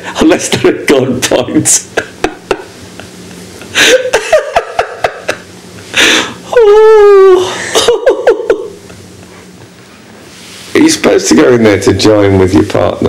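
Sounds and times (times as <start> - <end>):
man laughing: 1.8 - 9.7.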